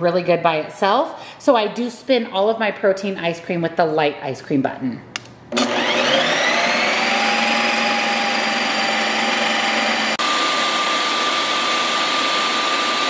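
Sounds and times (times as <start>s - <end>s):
ice cream maker whirring whine: 5.5s - 13.0s.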